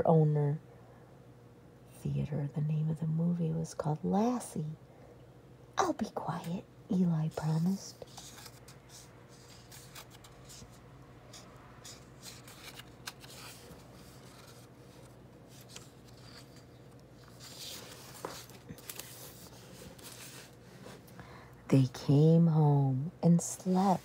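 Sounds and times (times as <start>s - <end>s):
room hum: 0.0s - 24.0s
book page rustling: 7.4s - 21.1s.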